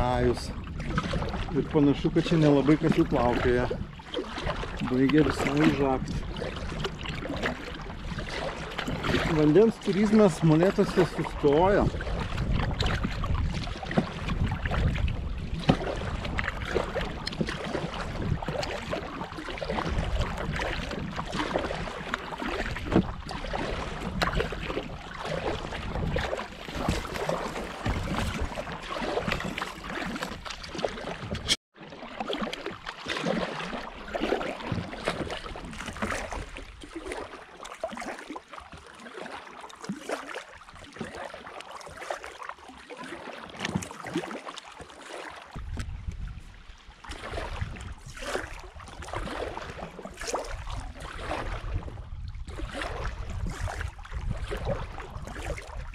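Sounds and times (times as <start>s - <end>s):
wind rumble on microphone: 0.0s - 9.7s, 10.3s - 31.6s, 45.5s - 55.9s
paddle splashing and dripping: 0.0s - 55.9s.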